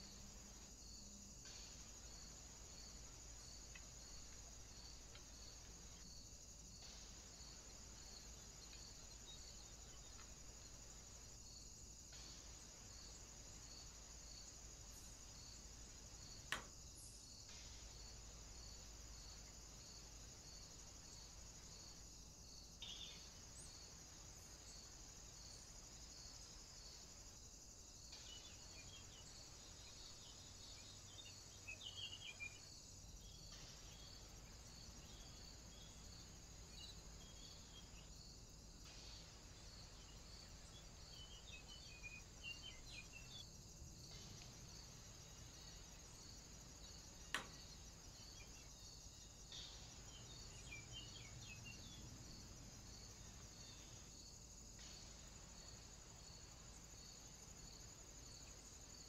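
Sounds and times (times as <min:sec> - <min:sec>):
insects trilling: 0:00.0 - 0:59.0
sharp click: 0:47.3 - 0:47.6.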